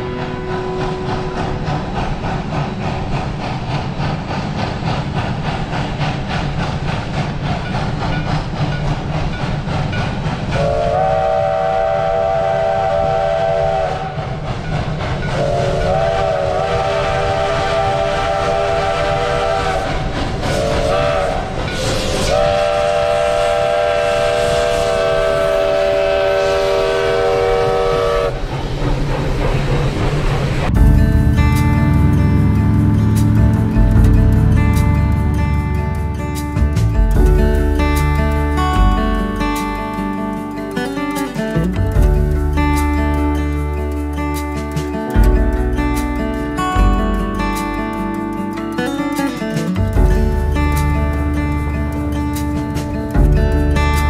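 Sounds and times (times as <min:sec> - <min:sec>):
steam hiss: 0:00.0 - 0:30.8
steam locomotive exhaust chuffs: 0:00.0 - 0:54.0
train chime whistle blasts: 0:10.6 - 0:14.2, 0:20.6 - 0:28.3.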